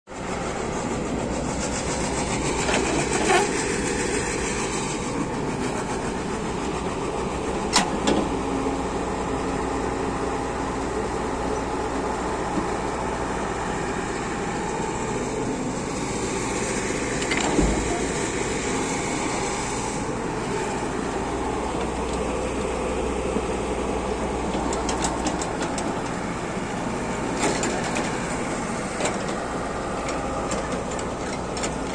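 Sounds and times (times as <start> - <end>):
excavator diesel engine: 0.1 - 31.9.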